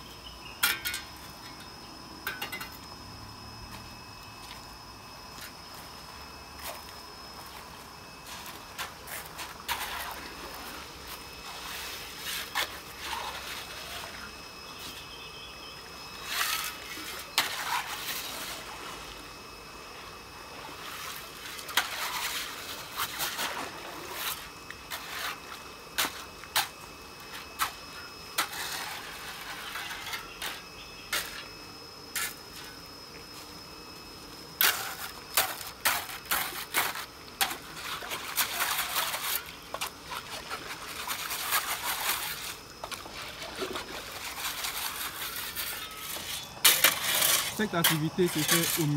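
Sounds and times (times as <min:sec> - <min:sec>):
shovel churning wet gravel: 0:08.2 - 0:14.3, 0:16.2 - 0:19.0, 0:20.7 - 0:30.6, 0:34.6 - 0:48.9
water splashing and sloshing: 0:20.4 - 0:27.8, 0:34.6 - 0:48.8.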